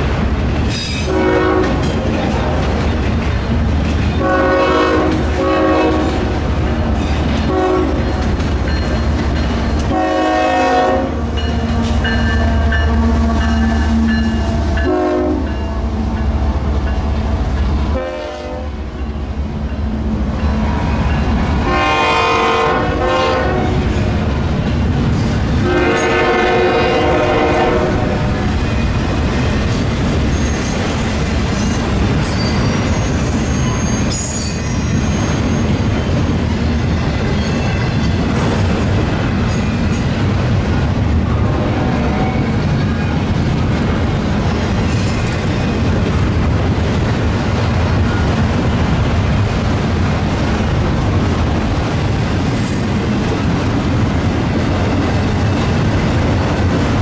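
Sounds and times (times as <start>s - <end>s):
freight train rumbling: 0.0s - 57.0s
locomotive air horn blasts: 1.1s - 1.8s, 4.2s - 6.2s, 7.5s - 8.0s, 9.9s - 11.9s, 14.5s - 15.5s, 17.9s - 18.8s, 21.6s - 23.8s, 25.6s - 28.4s.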